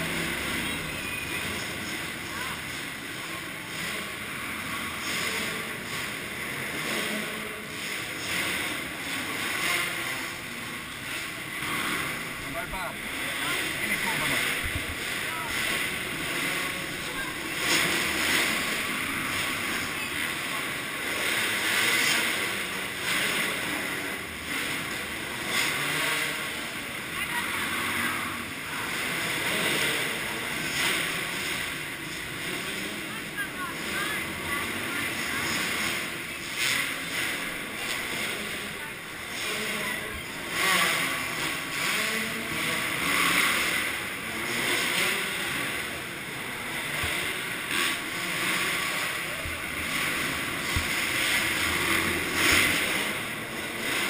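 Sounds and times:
muffled dirt bike engines: 0.0 - 54.0.

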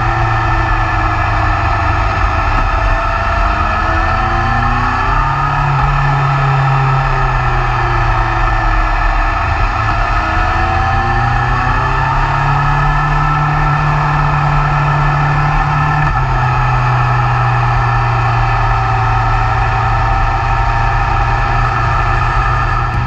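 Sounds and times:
motorcycle engine running: 0.0 - 23.0.

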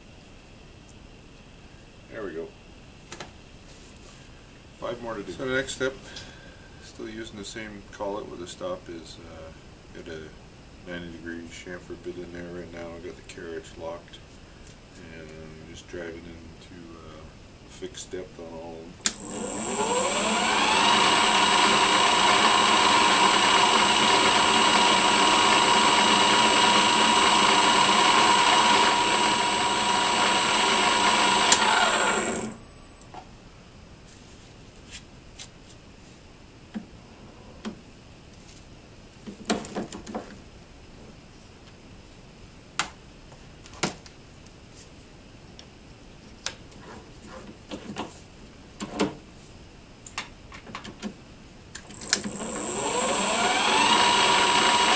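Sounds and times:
metal lathe whining: 19.0 - 32.8, 51.8 - 54.9.

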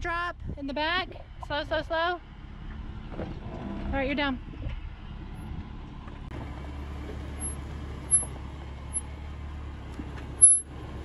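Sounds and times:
truck engine at low revs: 0.1 - 11.0
high-pitched squeaks: 7.4 - 8.3, 10.4 - 10.7.

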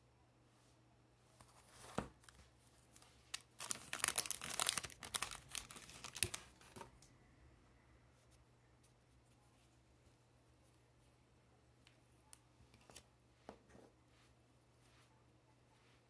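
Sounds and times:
foil wrapper crinkling: 3.3 - 6.9.

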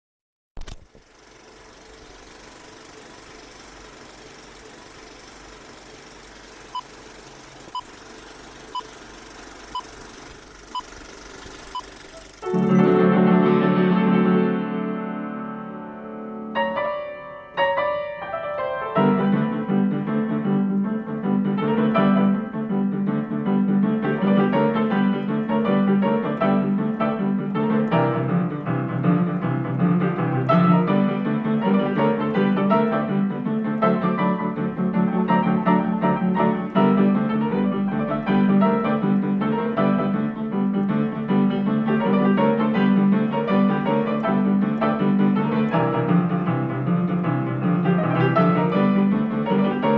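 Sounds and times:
boogie-woogie piano: 12.2 - 49.9.

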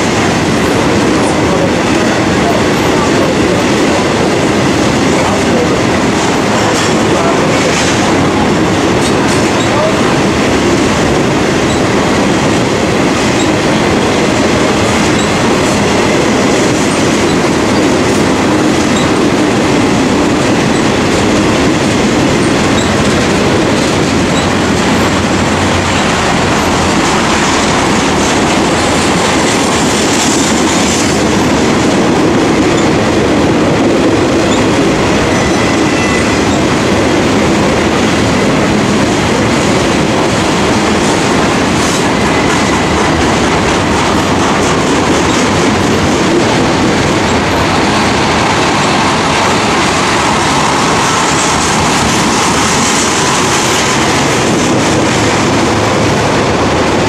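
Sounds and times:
freight train rumbling past: 0.0 - 57.0
wheels clacking over rail joints: 0.0 - 57.0
high wheel squeal: 35.3 - 36.6.

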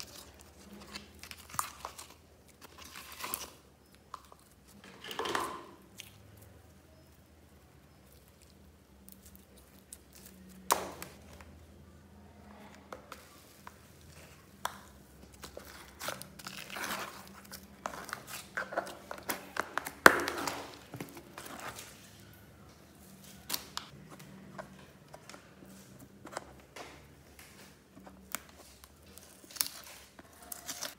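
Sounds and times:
sticky slime crackling and squelching: 0.0 - 4.8, 5.8 - 11.7, 12.5 - 22.0, 27.2 - 30.9.

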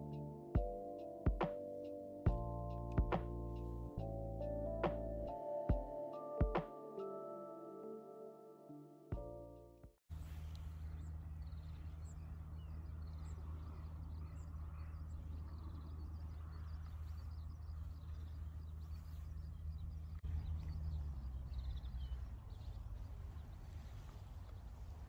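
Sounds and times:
small birds chirping: 10.1 - 25.0.

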